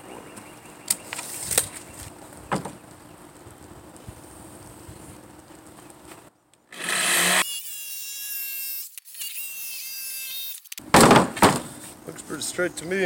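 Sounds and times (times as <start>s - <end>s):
jigsaw cutting plywood: 6.7s - 7.4s.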